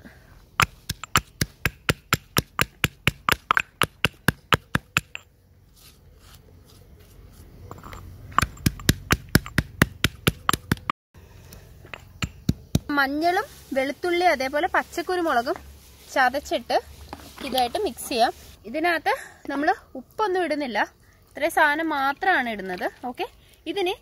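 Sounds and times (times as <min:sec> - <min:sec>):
pestle pounding in stone mortar: 0:00.6 - 0:05.2, 0:08.3 - 0:10.9, 0:11.9 - 0:12.9.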